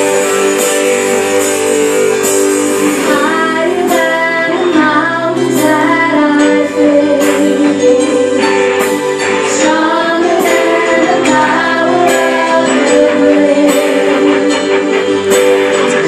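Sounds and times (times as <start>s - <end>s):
keyboard and guitar chords: 0.0s - 16.0s
woman singing: 3.0s - 8.5s, 9.5s - 14.8s.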